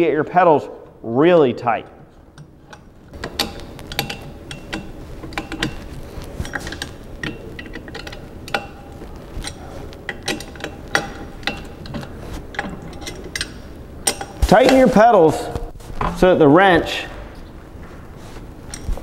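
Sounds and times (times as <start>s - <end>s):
metallic clicks of bicycle pedal: 2.3s - 14.9s.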